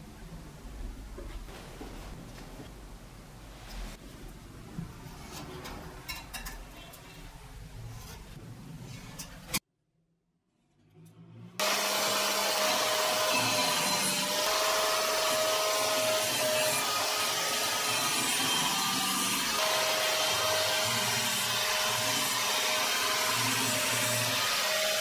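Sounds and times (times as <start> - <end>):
angle grinder motor whine: 11.6 - 25.0.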